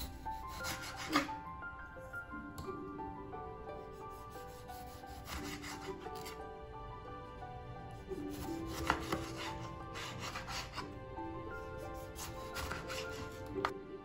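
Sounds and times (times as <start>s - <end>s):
knife slicing on cutting board: 0.0s - 1.3s, 4.1s - 6.4s, 8.2s - 10.8s, 11.8s - 13.5s
soft background music: 0.0s - 14.0s.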